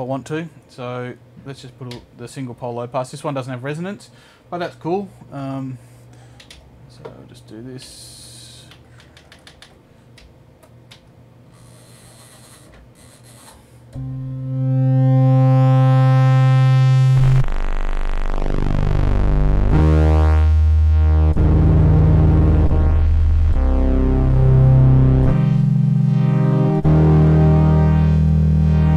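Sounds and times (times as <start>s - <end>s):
synthesizer pad notes: 14.0s - 28.9s.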